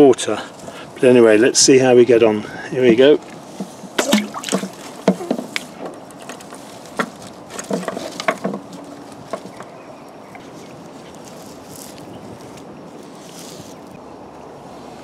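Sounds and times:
small splashes and gurgles: 3.3s - 5.8s
magnet plopping into water: 4.0s - 5.6s.

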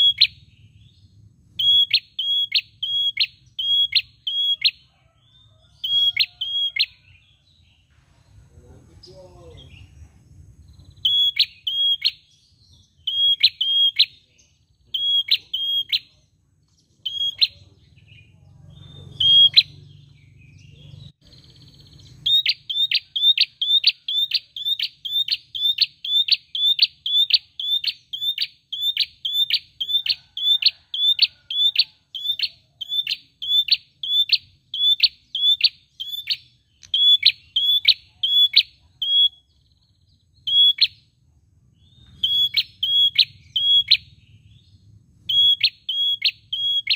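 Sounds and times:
bird calling sharp notes: 0.0s - 0.7s, 1.6s - 4.9s, 5.8s - 7.2s, 10.9s - 12.4s, 13.0s - 14.2s, 14.8s - 16.2s, 17.0s - 17.7s, 19.0s - 20.1s, 22.0s - 39.5s, 40.4s - 41.1s, 41.9s - 44.2s, 45.2s - 46.9s.

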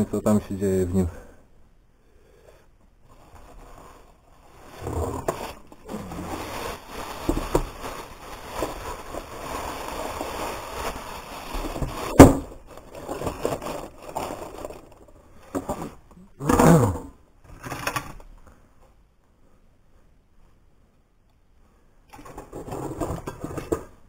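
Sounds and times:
objects rustling and scraping: 2.6s - 19.0s, 22.1s - 24.0s.

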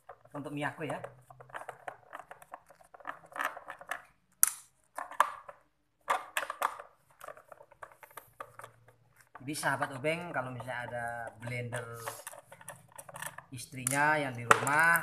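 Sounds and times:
screwdriver creaking and clicking: 10.2s - 15.0s.

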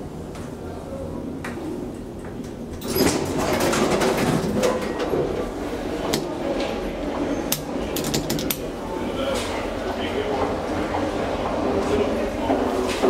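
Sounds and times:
elevator door and machinery: 2.2s - 8.8s.

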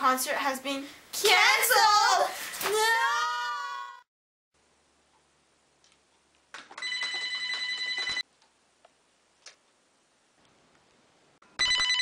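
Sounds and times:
telephone ringing: 6.8s - 8.2s, 11.4s - 12.0s.

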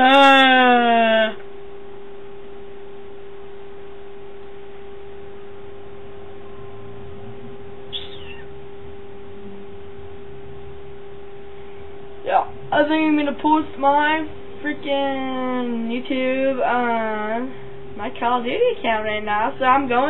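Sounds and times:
steady hum: 0.0s - 20.0s
high squeak falling in pitch: 7.9s - 8.6s.

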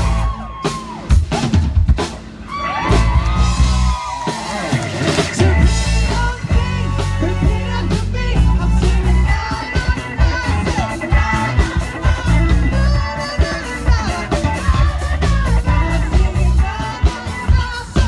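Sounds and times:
bass guitar: 0.0s - 18.0s
drums: 0.0s - 18.0s
electric guitar: 0.0s - 18.0s
keyboard: 0.0s - 18.0s
man singing into a microphone: 5.4s - 18.0s.

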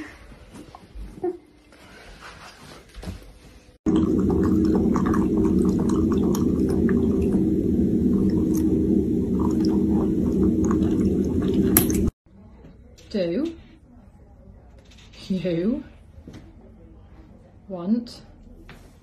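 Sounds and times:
puppy lapping water: 3.9s - 12.2s.

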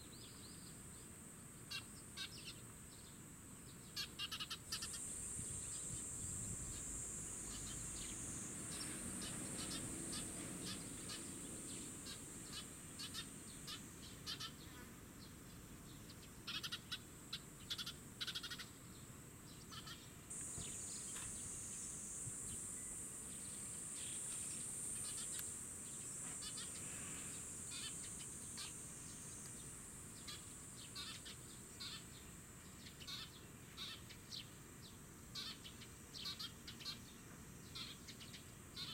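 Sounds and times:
fledgling sparrow begging chirps: 4.0s - 14.7s, 19.7s - 32.2s
high-pitched insect buzz: 4.0s - 14.9s, 19.7s - 32.2s.

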